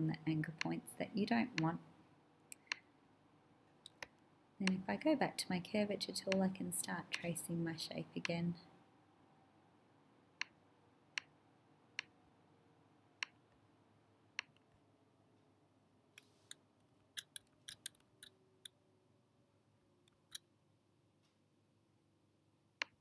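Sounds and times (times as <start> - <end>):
computer mouse clicks: 3.8 - 4.8, 17.2 - 18.8.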